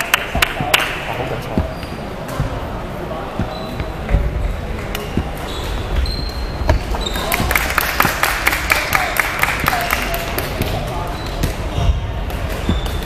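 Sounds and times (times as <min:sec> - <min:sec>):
shoes squeaking on wooden floor: 0:00.6 - 0:08.2, 0:10.5 - 0:13.0.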